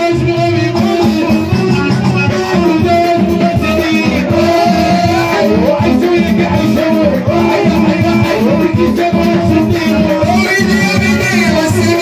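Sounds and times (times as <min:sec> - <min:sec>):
men singing into microphones: 0:00.0 - 0:12.0.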